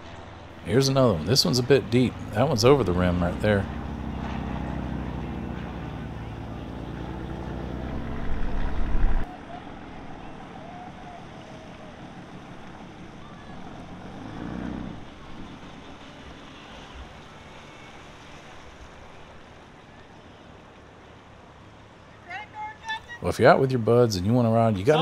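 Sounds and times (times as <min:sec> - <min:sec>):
water noise: 0:00.0 - 0:25.0
watercraft engine idling: 0:00.0 - 0:25.0
wind noise: 0:07.9 - 0:09.3.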